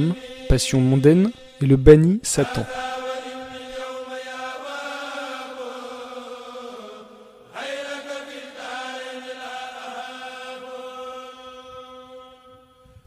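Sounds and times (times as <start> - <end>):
person narrating: 0.0 - 2.8
devotional chanting: 0.0 - 13.0.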